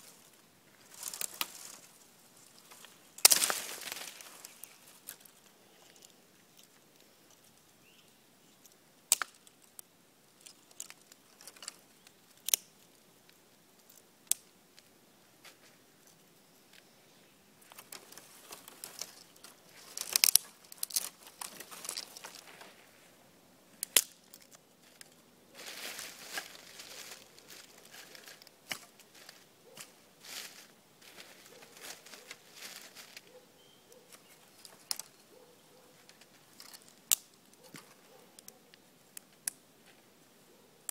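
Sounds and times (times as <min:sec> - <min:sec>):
rustling leaf litter: 0:00.0 - 0:05.4, 0:17.6 - 0:23.2, 0:24.8 - 0:33.4
twigs snapping: 0:00.8 - 0:01.9, 0:02.5 - 0:07.5, 0:08.6 - 0:14.9, 0:17.6 - 0:22.8, 0:23.8 - 0:33.4, 0:34.1 - 0:35.2, 0:36.1 - 0:38.6.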